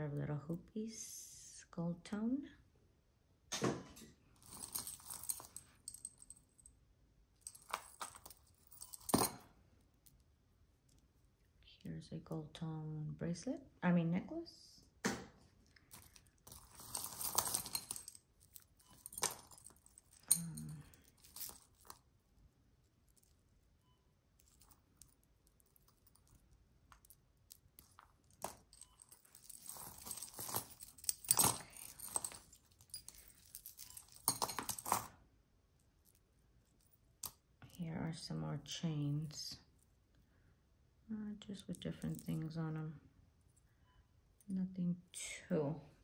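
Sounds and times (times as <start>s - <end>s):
jewelry chains jangling: 4.4s - 6.8s, 7.4s - 10.2s, 15.7s - 22.2s, 24.4s - 35.1s, 41.8s - 42.5s
rustling and crinkling: 15.5s - 22.2s, 24.4s - 35.1s.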